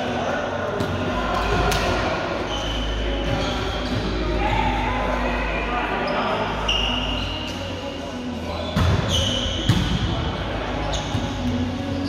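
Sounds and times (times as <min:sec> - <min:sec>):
players' voices: 0:00.0 - 0:12.0
sneaker squeaks on court floor: 0:02.4 - 0:04.2, 0:06.6 - 0:07.7, 0:08.6 - 0:10.2, 0:10.8 - 0:11.7.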